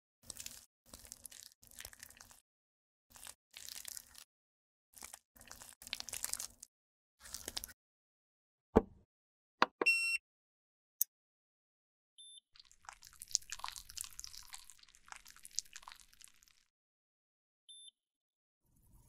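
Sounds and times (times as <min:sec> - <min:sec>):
thump: 0:08.8 - 0:09.0
electronic beep: 0:09.8 - 0:10.2, 0:17.7 - 0:17.9.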